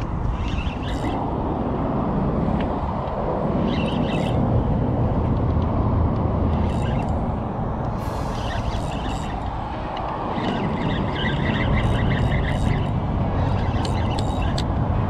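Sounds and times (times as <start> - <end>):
wind rumble on microphone: 0.0 - 15.0
fishing reel rasping: 6.6 - 7.2, 7.9 - 9.5, 10.4 - 14.6.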